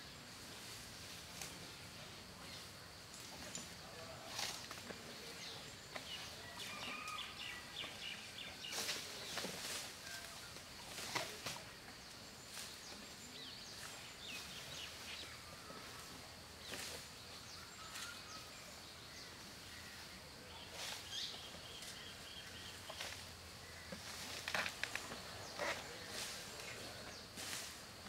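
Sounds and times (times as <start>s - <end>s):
birds chirping: 0.0s - 28.0s
elephant tearing and chewing grass: 4.3s - 7.2s, 8.6s - 11.7s, 22.8s - 27.8s.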